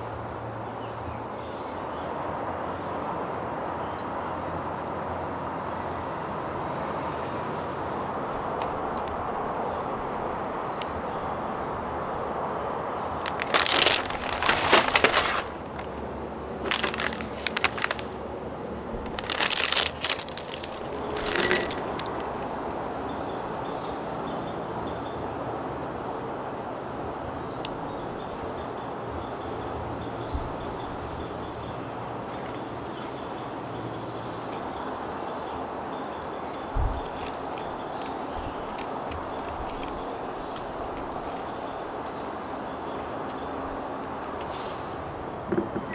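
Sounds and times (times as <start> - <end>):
steady background hiss: 0.0 - 39.1
foil snack packet crinkling: 13.2 - 16.0, 16.6 - 18.2, 19.0 - 22.3.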